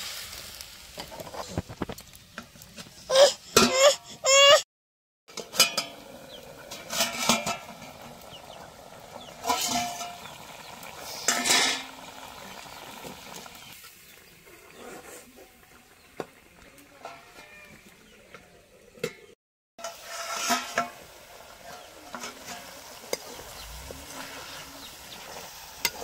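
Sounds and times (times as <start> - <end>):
steel lid and ladle clattering: 5.3 - 12.3, 19.0 - 24.9
ladle scraping pot: 5.3 - 13.7, 19.8 - 26.0.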